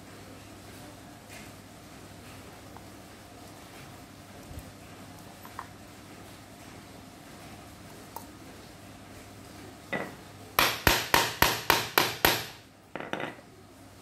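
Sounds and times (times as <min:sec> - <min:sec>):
hammer striking metal punch: 0:10.0 - 0:13.4.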